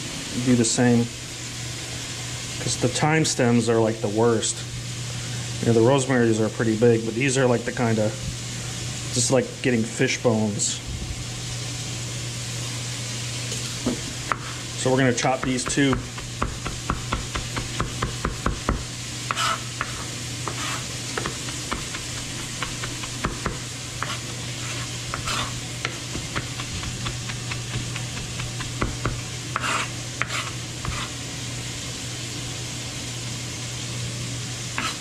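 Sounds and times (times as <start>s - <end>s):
steady low hum: 0.0s - 33.0s
onions sizzling in a pot: 0.0s - 35.0s
knife chopping herbs on a board: 14.3s - 14.6s, 15.2s - 31.1s, 34.8s - 35.0s
knife blade scraping board: 19.3s - 31.1s, 34.8s - 35.0s.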